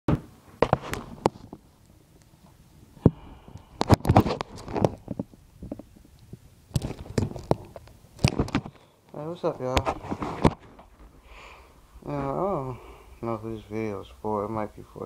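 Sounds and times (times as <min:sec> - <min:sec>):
phone handling bumps and rubs: 0:00.6 - 0:01.6, 0:03.8 - 0:06.0, 0:06.7 - 0:08.8, 0:09.7 - 0:11.2.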